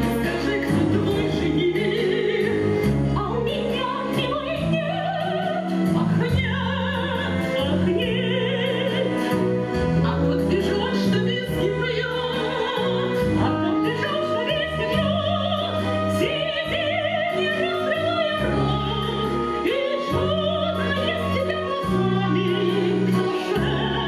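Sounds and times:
instrumental accompaniment: 0.0 - 24.0
women singing operetta: 0.0 - 24.0.

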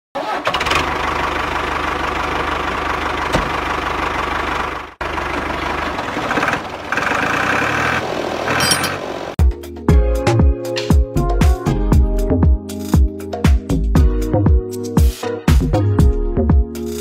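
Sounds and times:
tractor engine chugging: 1.1 - 9.3.

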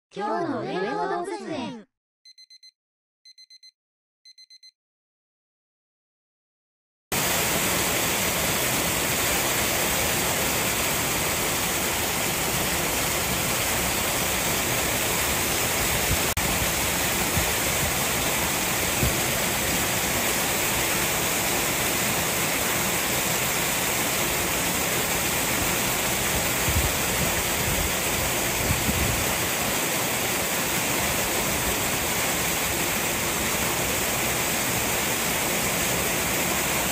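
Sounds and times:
short electronic beeps: 2.3 - 4.8
rushing water: 7.1 - 36.9.

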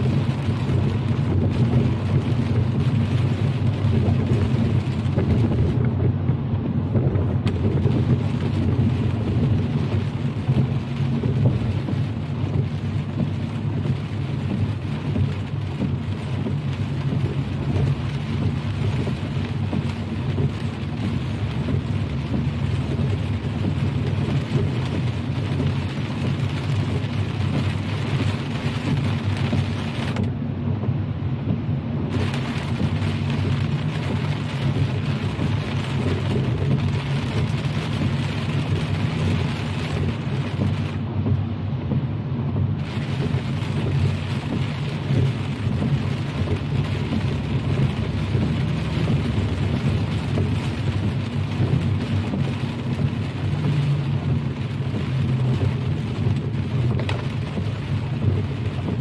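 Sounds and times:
low road rumble: 0.0 - 59.0
rain hitting a car: 0.0 - 59.0
tyre hiss on wet road: 32.1 - 41.1, 42.8 - 59.0.

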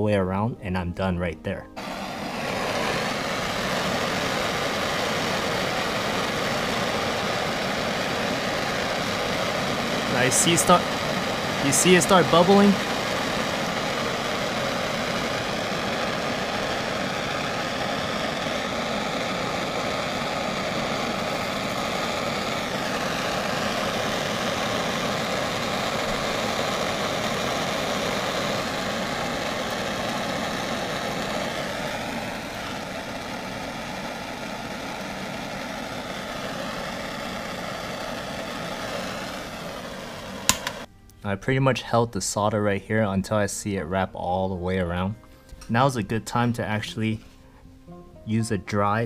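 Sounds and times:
torch flame rushing: 1.8 - 40.9.

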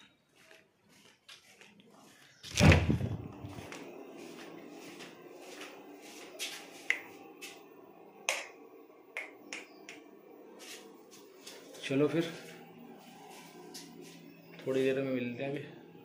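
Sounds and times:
loud thump: 2.5 - 3.4
low steady hum: 2.5 - 16.0.

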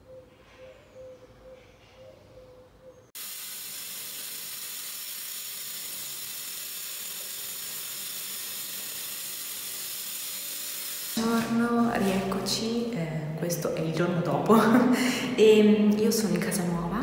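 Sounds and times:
steady hiss: 3.2 - 11.2.

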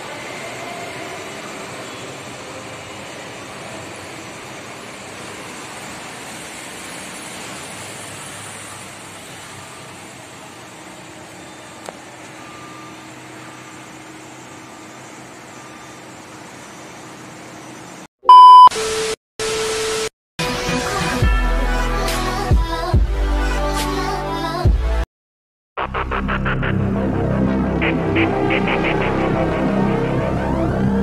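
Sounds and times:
road traffic hum: 0.0 - 18.1, 26.7 - 31.0.

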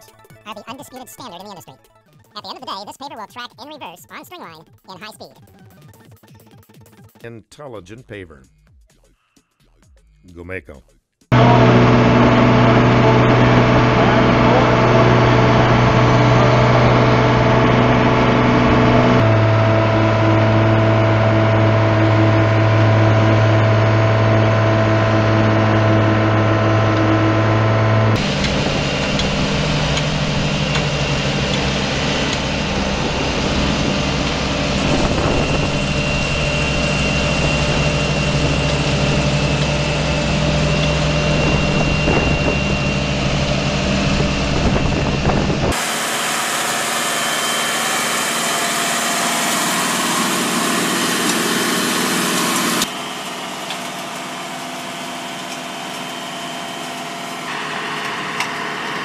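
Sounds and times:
machine engines droning: 11.3 - 59.0.

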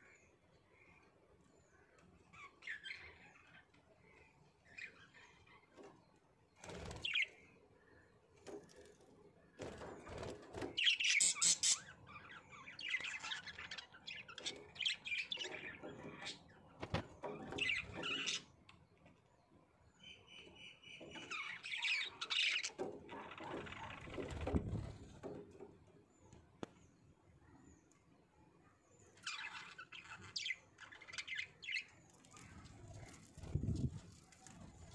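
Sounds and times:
budgerigars chirping: 10.9 - 12.0.

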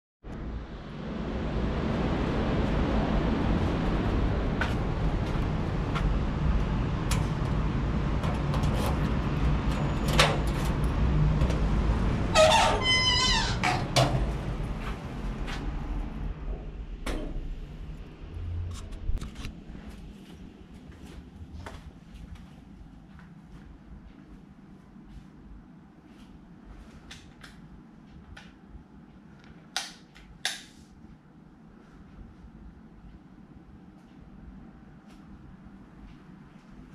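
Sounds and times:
low outdoor rumble: 0.2 - 36.9
door hinges creaking: 11.6 - 14.3.

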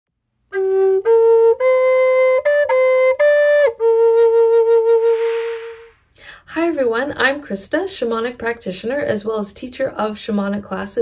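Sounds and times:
wooden flute melody: 0.5 - 6.0
soft hiss: 4.8 - 9.4.

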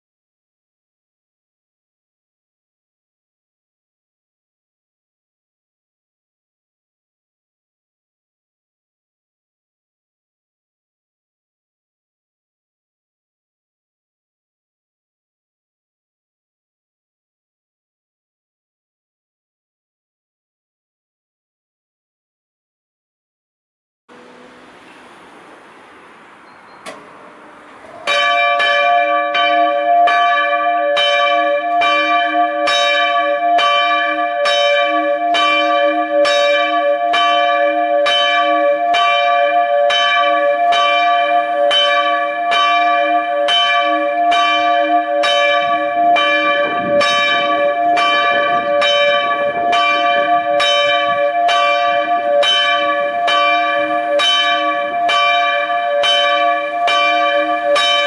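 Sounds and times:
church bell ringing: 26.5 - 58.0
wind noise: 45.6 - 52.4.

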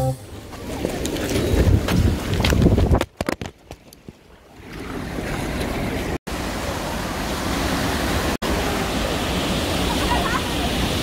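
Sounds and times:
stream water rushing over concrete: 4.5 - 11.0.

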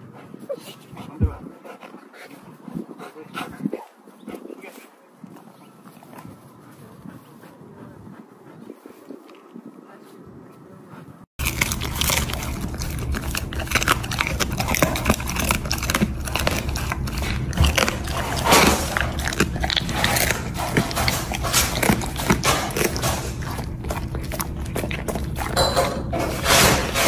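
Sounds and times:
dog chewing crunchy snack: 11.4 - 27.0.

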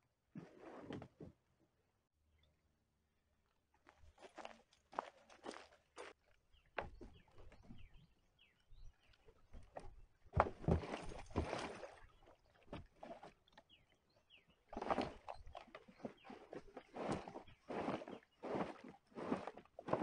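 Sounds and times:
scraping and knocking on plastic kayak: 0.4 - 1.4, 6.6 - 8.0, 9.4 - 13.7, 14.7 - 20.0.

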